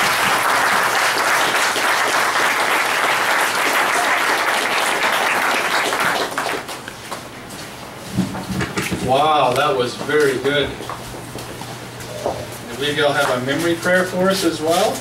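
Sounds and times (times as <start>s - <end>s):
congregation applauding: 0.0s - 6.9s.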